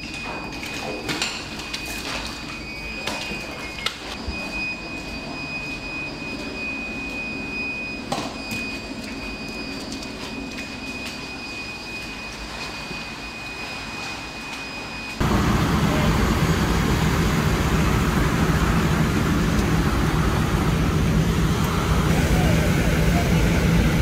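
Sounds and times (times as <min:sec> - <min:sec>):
steady high tone: 0:10.3 - 0:24.0
fire hose stream rushing: 0:15.2 - 0:24.0
low drone: 0:15.2 - 0:24.0.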